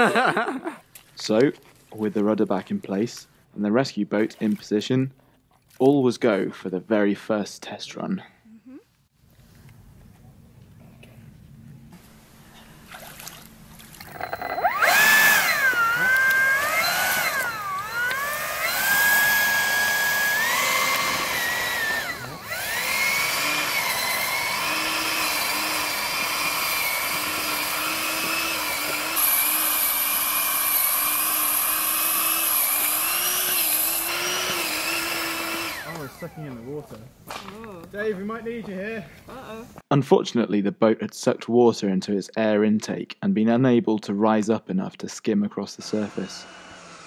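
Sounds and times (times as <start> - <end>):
electric ducted fan whining: 13.5 - 36.9.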